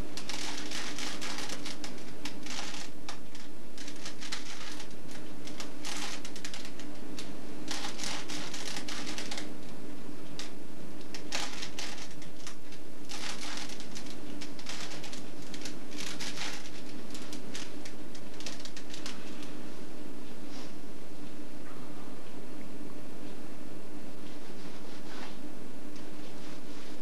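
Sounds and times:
steady low hum: 0.0s - 27.0s
puzzle cube clattering clicks: 0.2s - 9.5s, 10.4s - 19.2s.

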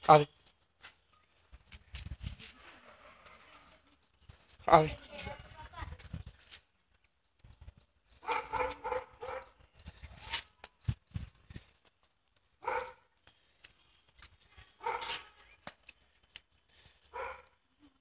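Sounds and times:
dog barking: 8.2s - 9.6s, 12.6s - 13.1s, 14.8s - 15.2s, 17.1s - 17.6s.

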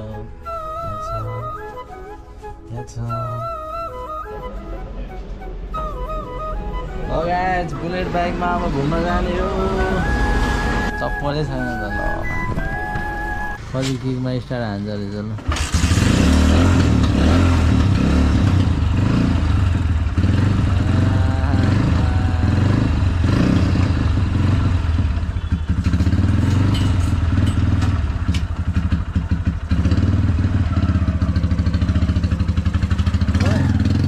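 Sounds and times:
motorcycle engine running: 15.4s - 34.0s.

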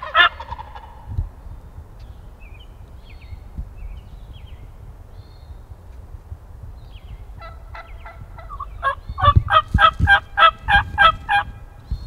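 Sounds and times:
wild turkey yelping: 0.0s - 1.0s, 7.4s - 11.5s.

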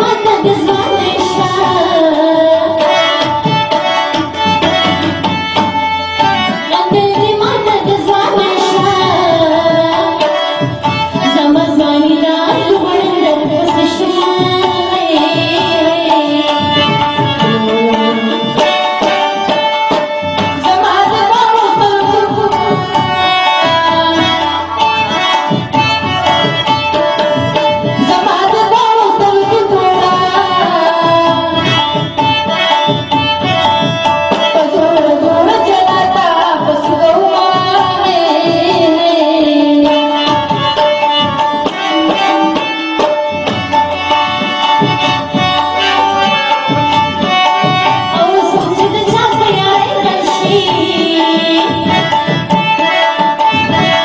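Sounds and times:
tabla rhythm: 0.0s - 54.0s
man singing into microphone: 17.4s - 18.6s.

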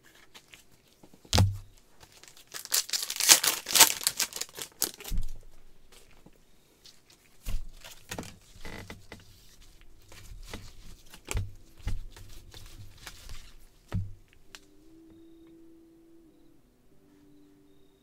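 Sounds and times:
cards clicking and rustling: 0.0s - 6.2s, 7.0s - 13.6s.

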